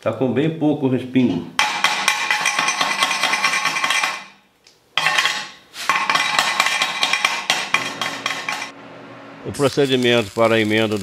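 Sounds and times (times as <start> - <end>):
wire brush scrubbing metal: 9.8 - 11.0.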